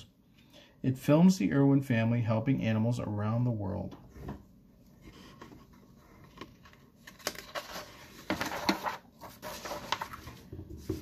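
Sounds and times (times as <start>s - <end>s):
paper rustling: 5.0s - 11.0s.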